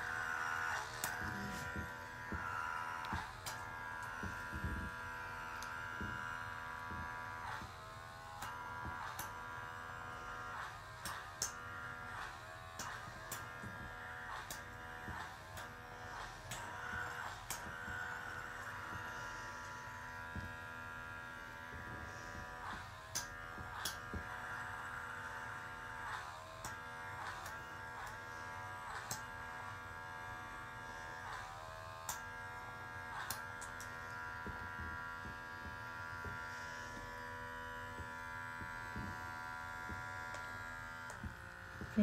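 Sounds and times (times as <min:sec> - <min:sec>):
pore vacuum buzzing whine: 0:00.0 - 0:42.0
small clicks: 0:10.5 - 0:19.8.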